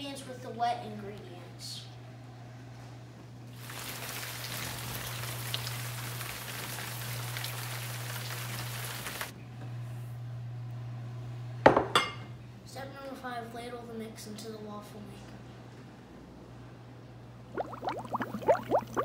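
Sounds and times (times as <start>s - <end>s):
batter pouring hiss: 3.6s - 9.3s.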